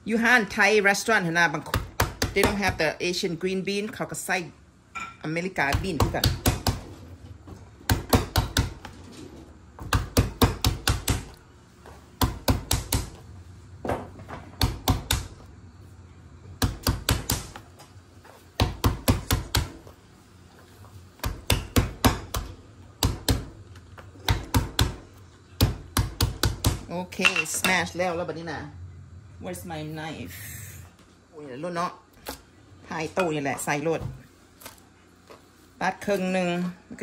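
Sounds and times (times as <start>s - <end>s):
meat tenderizer pounding on board: 1.7s - 2.8s, 5.6s - 6.8s, 7.8s - 8.8s, 9.8s - 11.4s, 12.2s - 13.2s, 14.6s - 15.3s, 16.6s - 17.6s, 18.6s - 19.8s, 21.2s - 23.5s, 24.2s - 25.0s, 25.6s - 26.9s.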